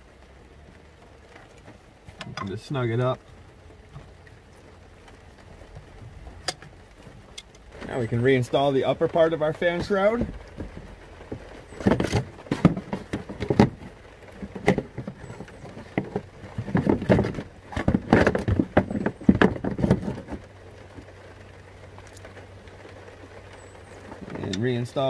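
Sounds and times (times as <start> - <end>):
plastic shroud knocks and rattles: 9.5 - 20.5.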